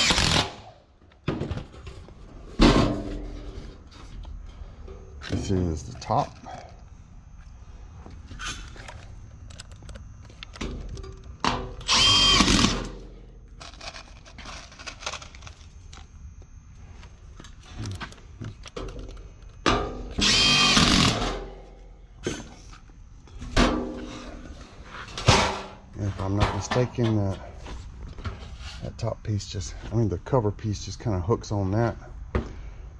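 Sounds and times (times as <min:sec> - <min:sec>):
cordless drill whine: 0:00.0 - 0:00.5, 0:11.8 - 0:12.9, 0:20.2 - 0:21.3
handling knocks and clatter: 0:23.3 - 0:27.5.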